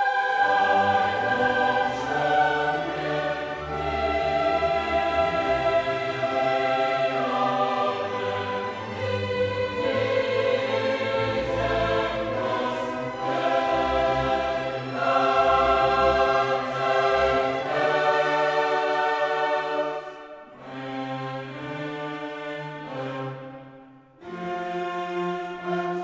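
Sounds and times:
choir singing held chords: 0.0s - 24.5s
orchestra: 0.0s - 26.0s.

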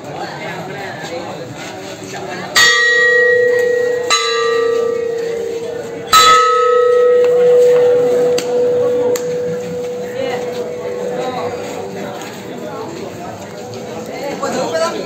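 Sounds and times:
large metal bell ringing: 2.5s - 15.0s.

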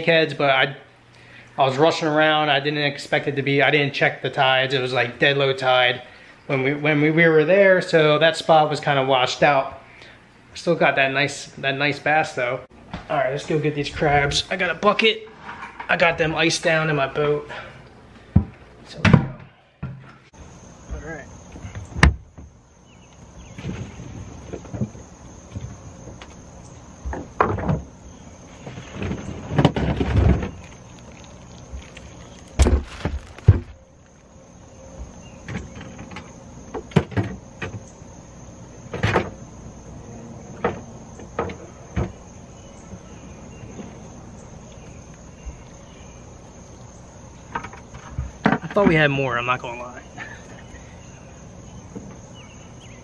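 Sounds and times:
faint insect trill: 18.8s - 53.0s
crabs knocking and scraping in ice: 28.6s - 33.8s.

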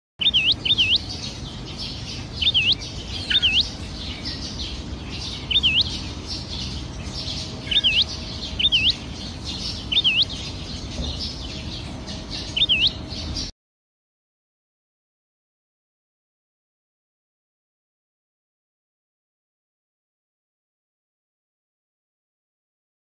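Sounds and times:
sparrows chirping: 0.2s - 13.5s.

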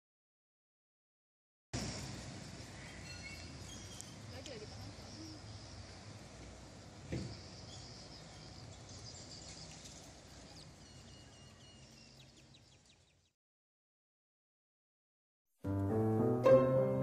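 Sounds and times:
small birds chirping: 1.8s - 13.4s
brief thump: 7.1s - 7.4s.

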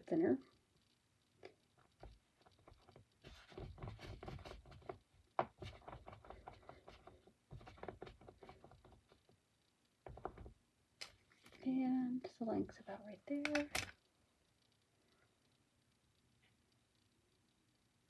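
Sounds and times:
palms rubbing wet clay: 1.9s - 9.3s.

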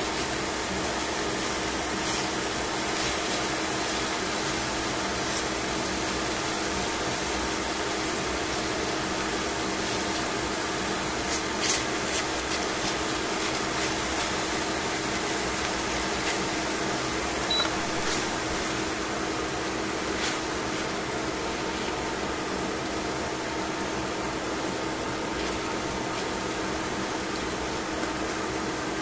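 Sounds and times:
chicken frying in a pan: 0.0s - 29.0s
low steady hum: 9.4s - 29.0s.

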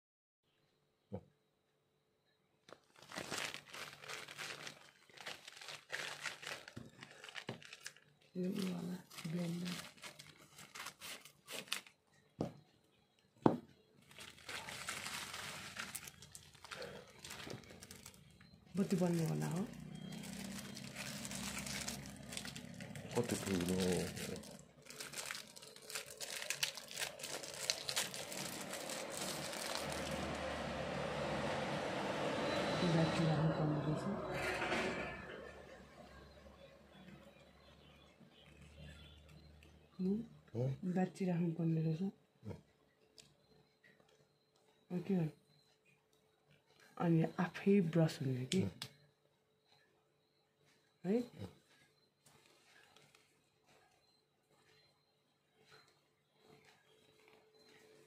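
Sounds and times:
plastic mailer crinkling: 2.7s - 12.1s, 13.9s - 30.9s.

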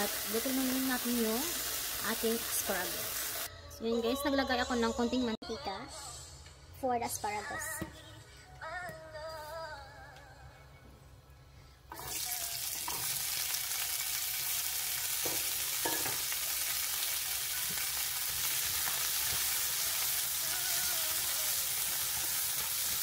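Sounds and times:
asparagus sizzling in hot oil: 0.0s - 3.5s, 12.0s - 23.0s.

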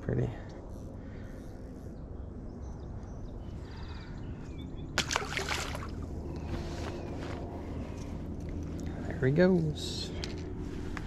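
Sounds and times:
fish splashing into water: 5.0s - 6.1s.

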